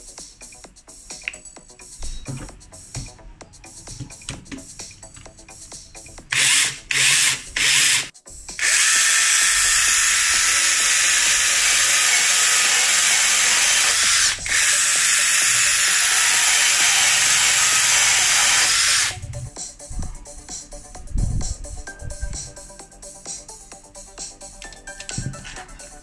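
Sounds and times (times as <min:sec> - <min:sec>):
mini chainsaw sawing wood: 0:06.3 - 0:19.2.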